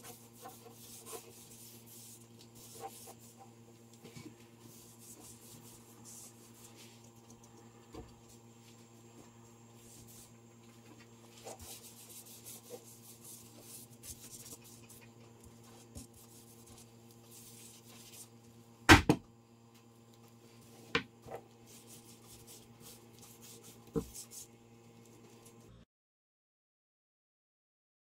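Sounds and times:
cloth rubbing wooden stick: 0.0s - 7.1s, 11.3s - 18.3s.

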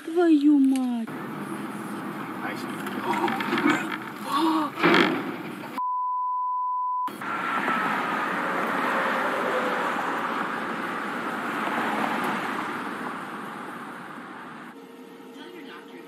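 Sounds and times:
street traffic: 0.0s - 5.8s, 7.0s - 16.0s
lorry engine with whine: 1.1s - 5.8s, 7.1s - 16.0s
censor bleep: 5.8s - 7.1s.

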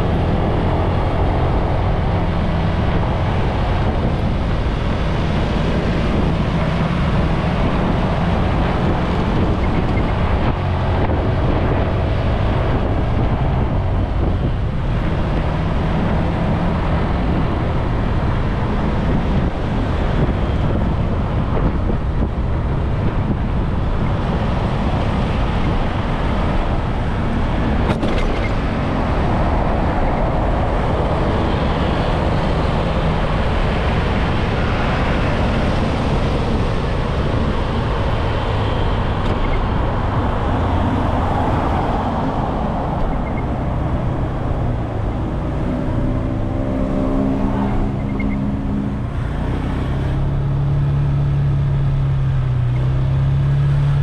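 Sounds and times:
wind and road rush: 0.0s - 54.0s.

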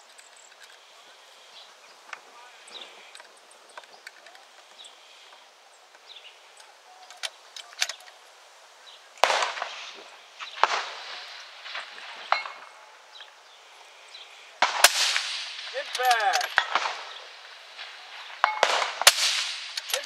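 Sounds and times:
faint cracks and clicks: 0.0s - 0.9s, 2.9s - 8.3s, 14.6s - 20.0s
rifle shots with echo: 9.2s - 13.2s, 14.6s - 20.0s.

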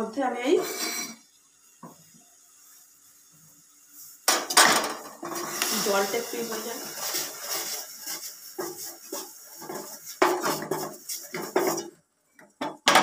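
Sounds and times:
wooden spatula scraping a pan: 5.2s - 12.0s.

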